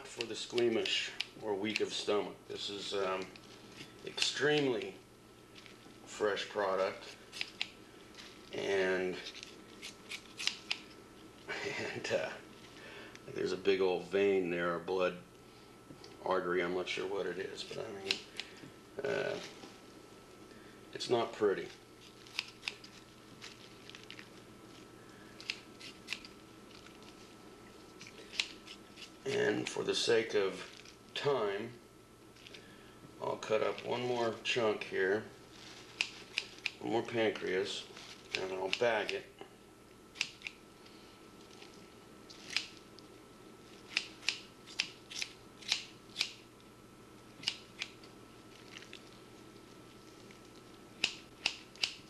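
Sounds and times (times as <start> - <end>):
scissors snipping: 4.1 - 4.9, 7.3 - 7.8, 9.3 - 10.9, 22.3 - 23.6, 25.4 - 26.4, 35.9 - 36.8, 38.3 - 39.2, 40.2 - 40.6, 42.3 - 42.8, 43.9 - 46.4, 47.4 - 48.0, 51.0 - 52.0
scissors snipping meat: 9.8 - 10.9, 22.3 - 23.0, 35.9 - 36.8.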